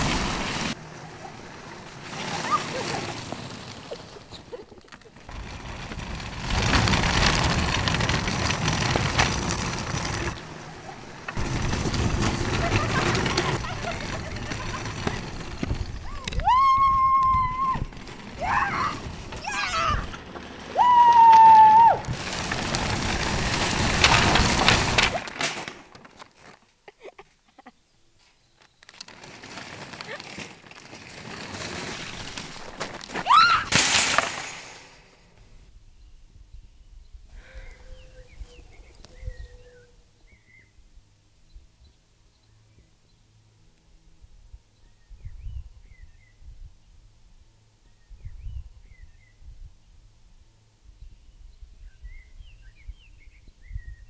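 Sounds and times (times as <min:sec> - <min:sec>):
shopping trolley rattling over concrete: 0:00.0 - 0:26.6, 0:28.8 - 0:35.0.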